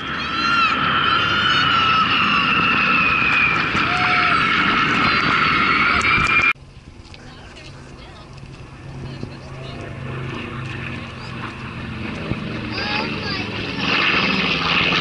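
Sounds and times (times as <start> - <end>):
military aircraft flying overhead: 0.0 - 15.0.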